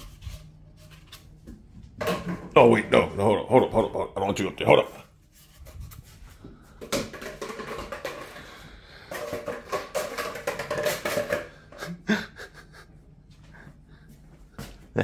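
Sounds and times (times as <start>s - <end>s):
cardboard tube rolling on vinyl floor: 5.3s - 11.8s.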